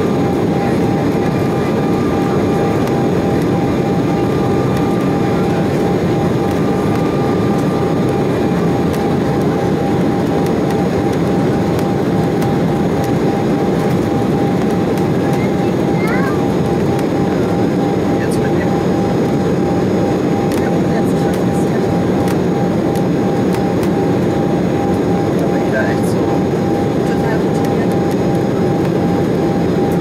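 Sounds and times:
turbofan engines: 0:00.0 - 0:30.0.

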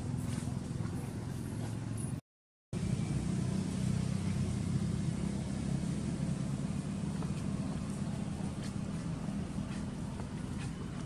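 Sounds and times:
steady low rumble: 0:02.8 - 0:11.0.

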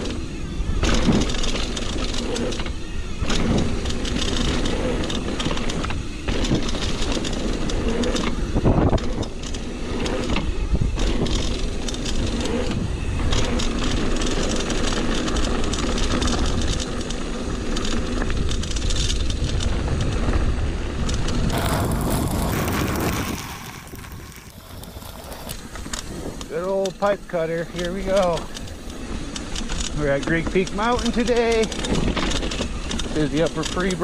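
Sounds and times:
bike rattling over bumps: 0:00.0 - 0:34.0
wind rushing over microphone: 0:00.0 - 0:34.0
tyres rolling on dirt: 0:21.2 - 0:34.0.

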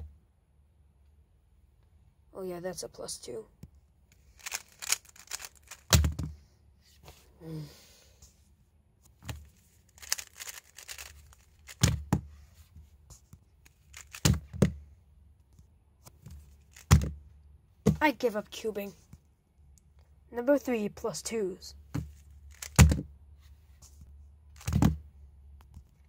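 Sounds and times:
speed cube clicking turns: 0:04.4 - 0:06.0, 0:10.0 - 0:11.9, 0:13.8 - 0:14.4, 0:22.5 - 0:22.8.

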